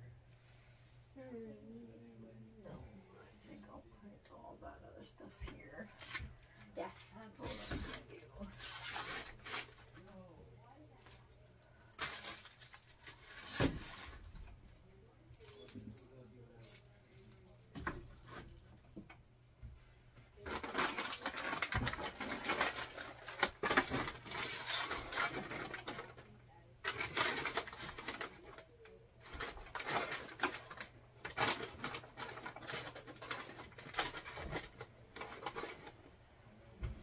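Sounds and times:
plastic bags crinkling: 6.0s - 10.1s, 11.9s - 14.3s, 20.4s - 35.9s.

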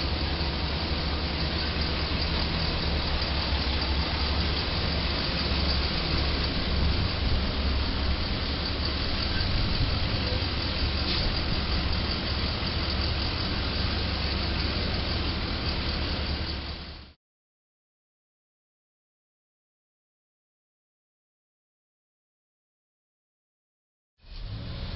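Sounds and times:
diesel engine running: 0.0s - 17.2s
street noise: 0.0s - 17.2s, 24.2s - 24.9s.

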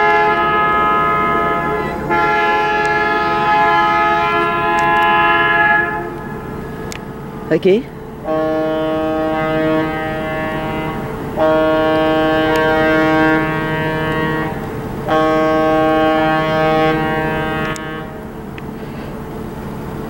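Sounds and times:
ship horn blasts: 0.0s - 20.0s.

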